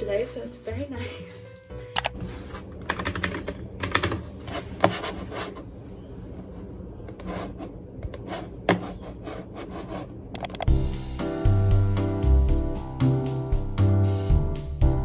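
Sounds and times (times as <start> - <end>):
computer keyboard typing: 2.8 - 4.2, 10.3 - 10.8.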